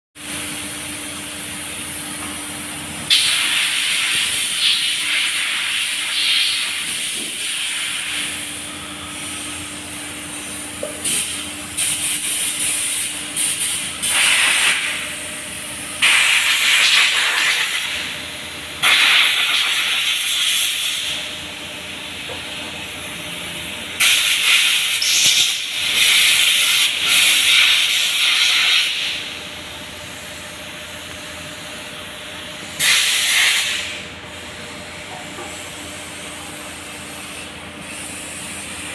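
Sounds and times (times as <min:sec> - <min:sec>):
loud hissing bursts: 0:18.8 - 0:21.2, 0:24.0 - 0:29.2, 0:32.8 - 0:34.0.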